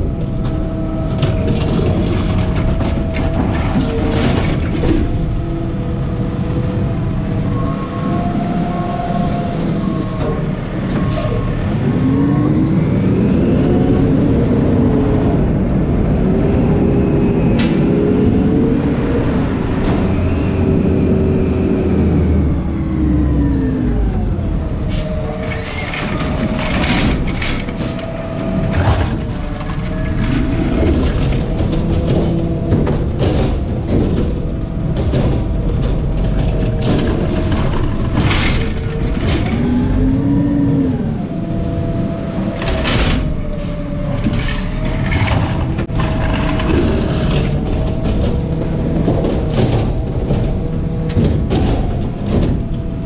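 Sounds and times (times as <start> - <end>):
garbage truck engine: 0.0 - 53.0
mechanical arm clanks and knocks: 25.4 - 39.9, 42.5 - 53.0.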